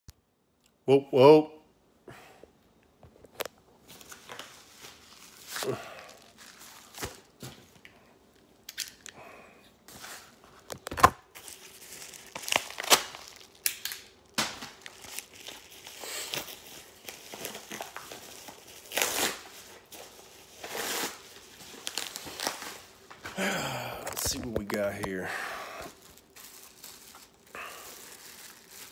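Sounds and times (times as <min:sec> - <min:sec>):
packaging torn and crinkled: 0:03.4 - 0:07.4, 0:10.6 - 0:23.1, 0:24.0 - 0:25.2, 0:25.8 - 0:28.9.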